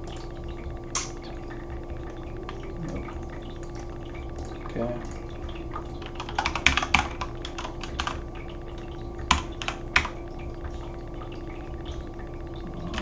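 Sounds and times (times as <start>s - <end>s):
steady low hum: 0.0s - 13.0s
computer keyboard typing: 6.0s - 8.2s, 9.2s - 10.2s.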